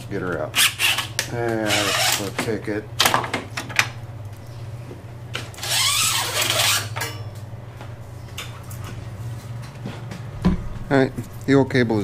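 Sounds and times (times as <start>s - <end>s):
cable scraping and rasping: 5.6s - 6.9s.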